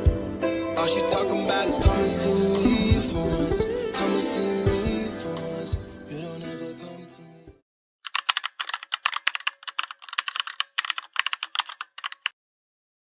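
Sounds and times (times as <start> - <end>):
background music: 0.0 - 7.6
computer keyboard typing: 8.0 - 12.4.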